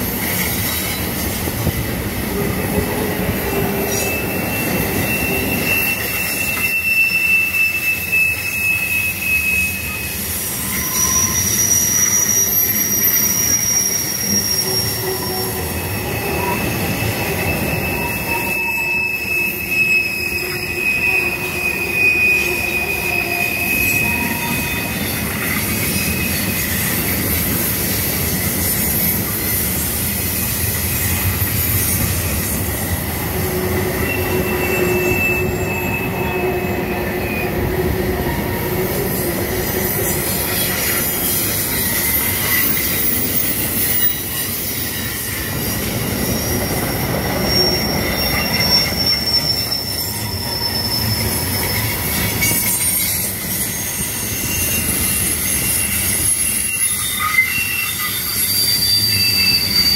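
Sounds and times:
train rumble: 0.0 - 59.9
train wheels squealing on rail: 0.0 - 59.9.

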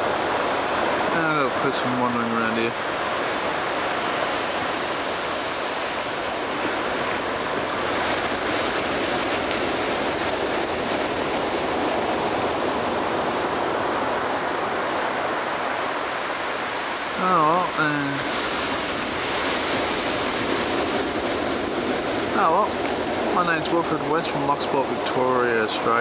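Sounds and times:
ocean surf on beach: 0.0 - 26.0.

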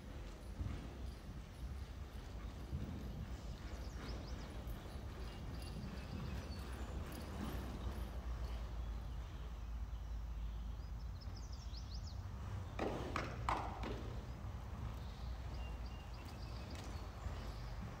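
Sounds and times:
horse hooves on sand: 0.0 - 18.0.

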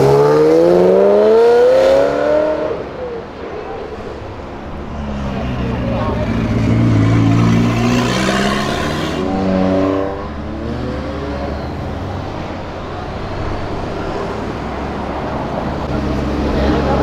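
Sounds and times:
cars driving past: 0.0 - 17.0
engine accelerating: 4.9 - 11.8.

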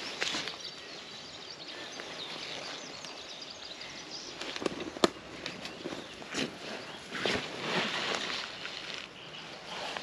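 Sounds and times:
leaves rustling: 4.4 - 10.0.

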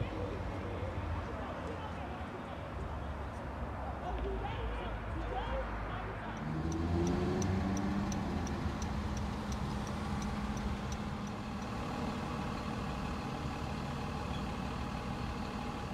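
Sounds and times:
turn signal ticking: 6.3 - 15.9
car engine running: 6.6 - 15.9.

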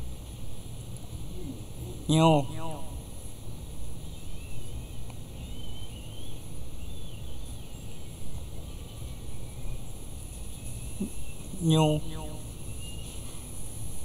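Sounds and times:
low rumble of background noise: 0.0 - 14.0
faint high wavering chirps: 4.0 - 14.0.

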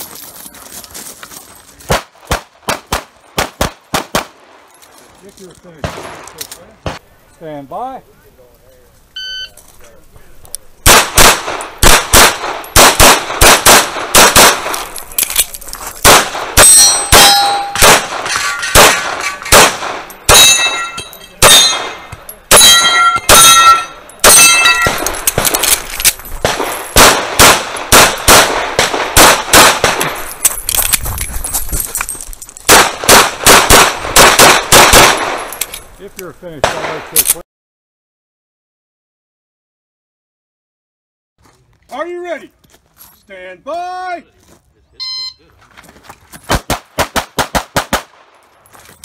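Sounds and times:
pistol shots: 1.9 - 4.4, 10.8 - 15.0, 16.0 - 30.3, 32.7 - 35.6, 36.6 - 37.2, 46.5 - 48.2
steel targets ringing: 16.6 - 19.5, 20.2 - 25.2.

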